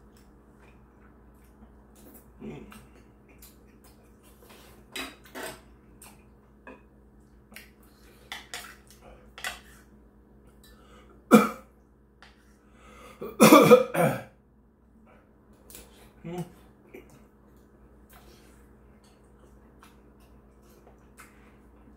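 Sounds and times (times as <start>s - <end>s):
eating sounds: 0.0s - 6.4s
loud coughing: 11.3s - 11.6s, 13.2s - 14.3s.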